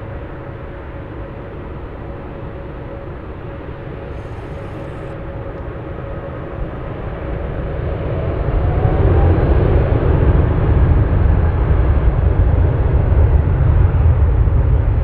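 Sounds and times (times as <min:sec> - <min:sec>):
faint rising whine: 0:00.0 - 0:11.6
jet engines rumbling: 0:00.0 - 0:15.0.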